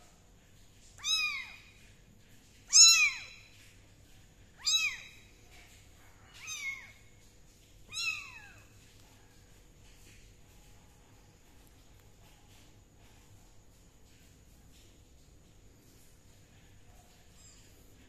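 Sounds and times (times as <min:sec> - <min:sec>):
kitten meowing: 0:01.0 - 0:01.6, 0:02.7 - 0:03.4, 0:04.6 - 0:05.2, 0:06.3 - 0:07.0, 0:07.9 - 0:08.7.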